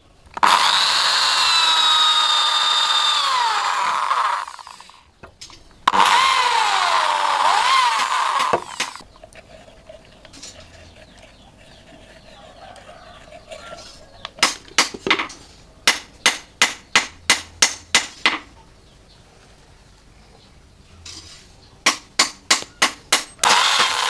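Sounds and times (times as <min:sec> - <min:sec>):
electric drill boring through steel: 0:00.4 - 0:05.0, 0:05.9 - 0:09.0, 0:23.4 - 0:24.0.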